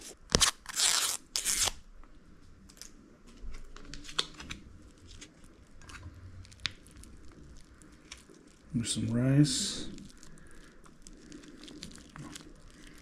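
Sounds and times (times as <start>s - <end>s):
foil pouch crinkling: 0.0s - 1.8s, 3.5s - 13.0s
foil pouch tearing: 0.0s - 1.8s, 9.8s - 13.0s.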